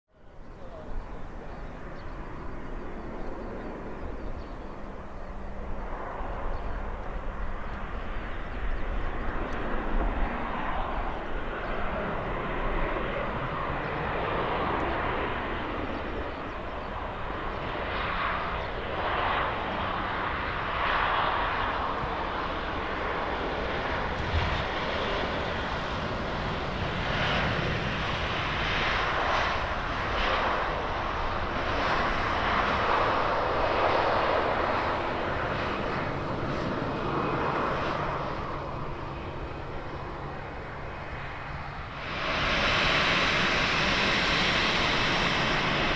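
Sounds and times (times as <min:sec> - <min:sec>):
jet engines roaring: 0:00.3 - 0:45.9.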